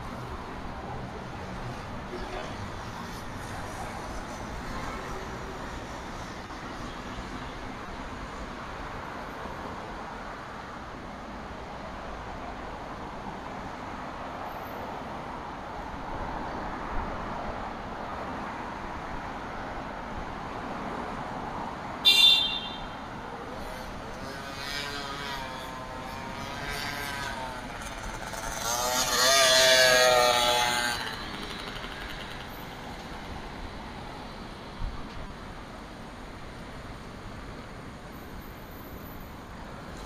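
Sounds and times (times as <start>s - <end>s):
street traffic noise: 0.0s - 40.0s
car passing close: 23.6s - 33.3s.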